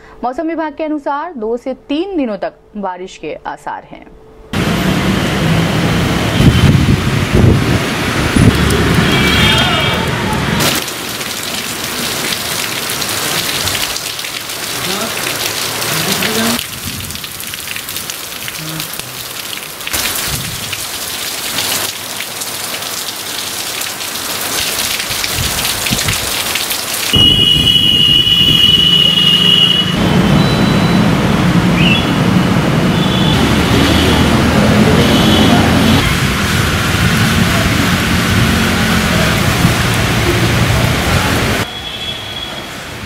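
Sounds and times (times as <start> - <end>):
rain falling: 4.6 - 41.7.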